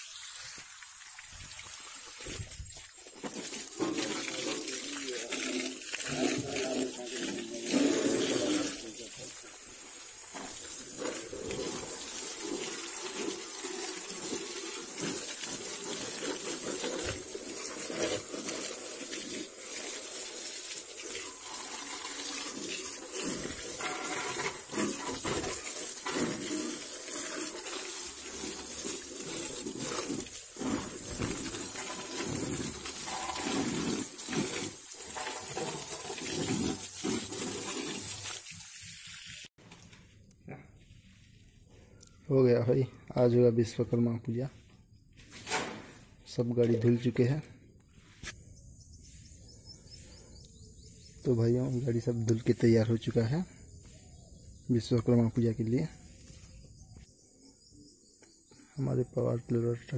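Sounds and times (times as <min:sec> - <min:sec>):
hose water spraying on motorcycle: 0:00.0 - 0:39.7, 0:50.8 - 0:56.8.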